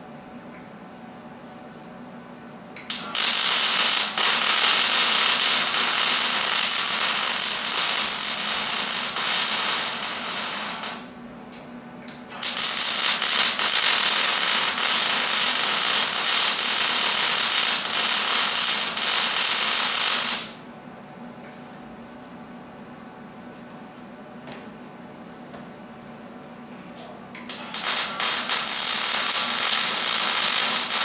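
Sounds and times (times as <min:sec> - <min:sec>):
welding arc crackling and hissing: 0:02.9 - 0:11.1, 0:12.3 - 0:20.6, 0:27.5 - 0:31.0.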